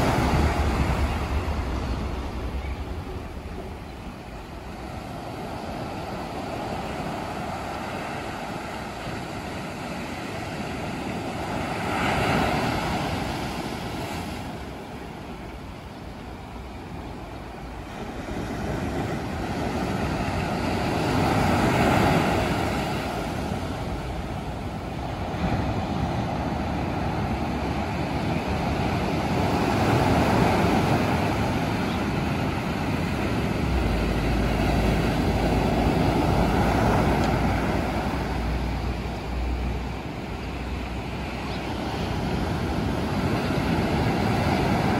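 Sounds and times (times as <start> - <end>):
low steady rumble: 0.0 - 6.6, 33.0 - 41.4
sea surf breaking on rocks: 0.0 - 44.9.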